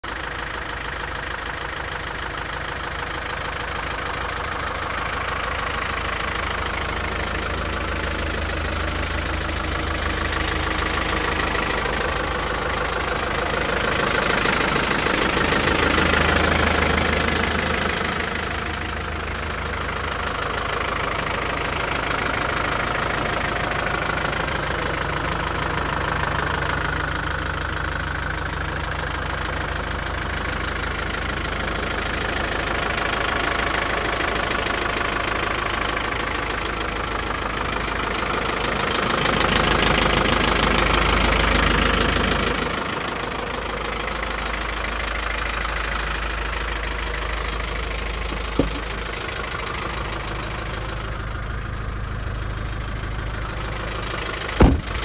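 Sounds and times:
diesel engine idling: 0.0s - 55.0s.

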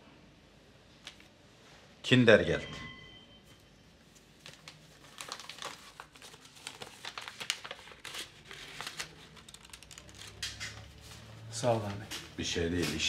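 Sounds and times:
paper envelope crinkling: 4.1s - 13.0s.

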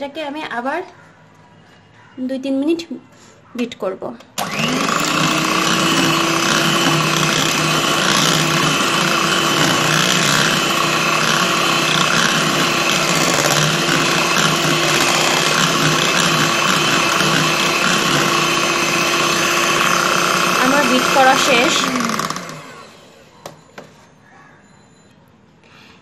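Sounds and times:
beaters churning batter: 4.4s - 22.7s
electric hand mixer whine: 4.4s - 23.2s.

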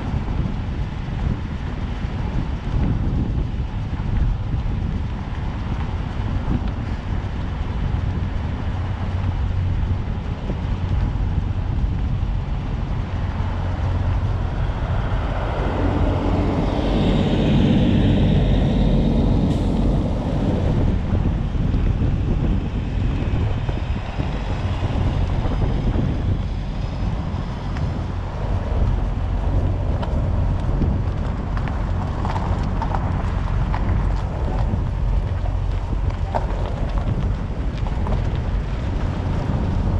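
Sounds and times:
vehicle engine and road rumble: 0.0s - 39.9s
wind buffeting microphone: 0.0s - 39.9s
louder engine sound: 12.5s - 31.0s.

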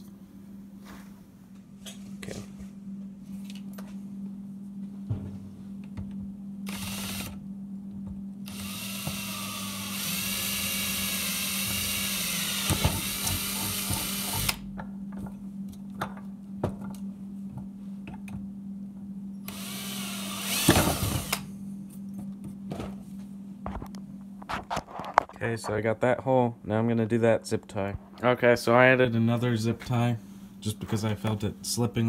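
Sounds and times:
cordless drill boring plastic pipe: 6.7s - 7.4s, 8.5s - 14.6s, 19.5s - 21.4s.

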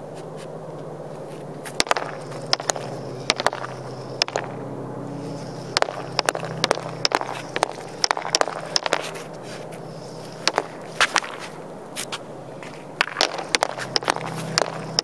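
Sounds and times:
hockey stick tapping a puck: 1.7s - 4.5s, 5.8s - 9.3s, 10.5s - 11.5s, 12.6s - 15.0s.

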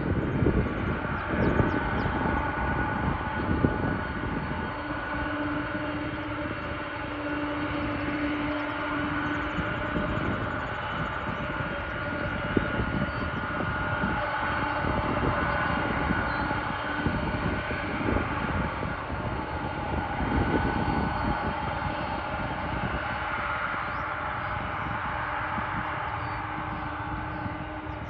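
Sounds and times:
jet engines whining and rumbling: 0.0s - 28.0s.

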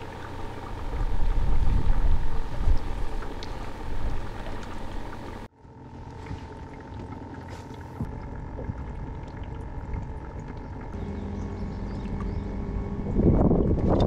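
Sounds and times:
low hum: 0.0s - 14.0s
water lapping against boat hull: 0.0s - 14.0s
wind on microphone: 0.6s - 5.2s, 11.8s - 14.0s.

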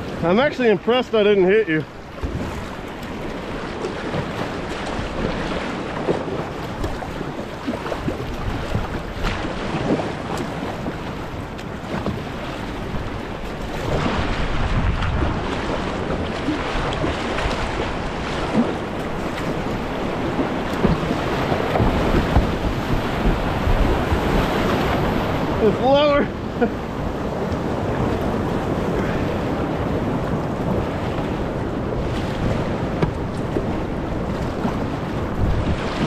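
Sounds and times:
wind noise on microphone: 2.2s - 36.0s
whitewater rushing through rapids: 12.6s - 33.8s.

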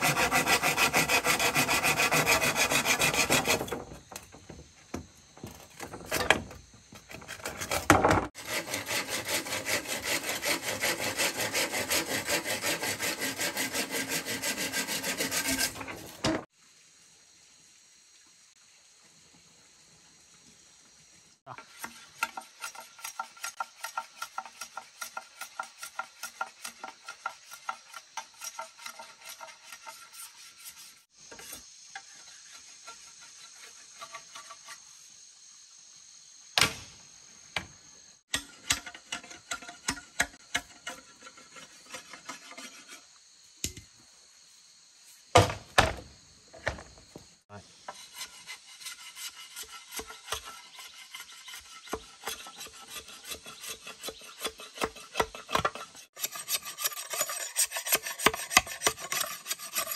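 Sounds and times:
tool rasping bamboo: 0.0s - 4.5s, 7.1s - 16.5s, 21.5s - 34.8s, 38.3s - 43.1s, 47.8s - 59.9s.

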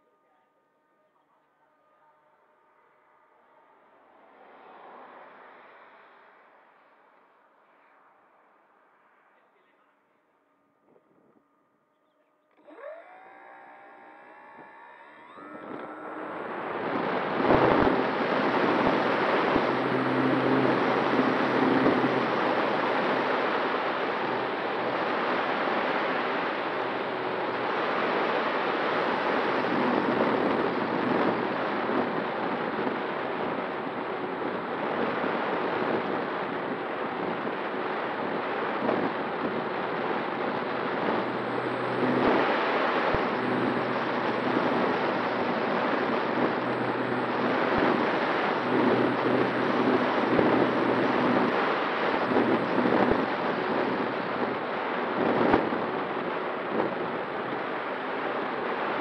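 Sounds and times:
propeller humming: 12.0s - 59.0s
wind rushing over microphone: 13.8s - 59.0s.

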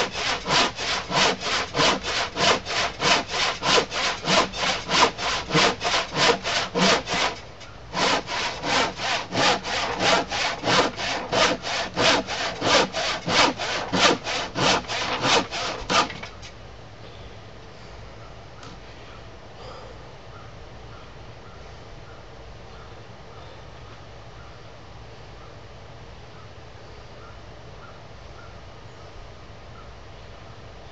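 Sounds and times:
handsaw cutting wood: 0.0s - 16.4s.

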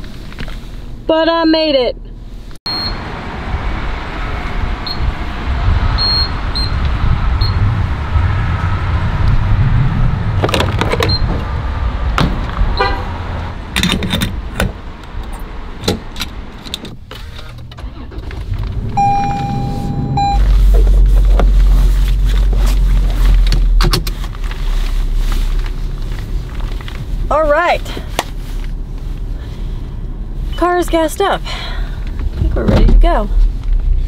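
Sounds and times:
fuel running rumble: 1.8s - 34.0s
low hum: 17.8s - 23.6s
steady tone: 18.7s - 21.2s
keypad beeps: 19.0s - 20.4s.

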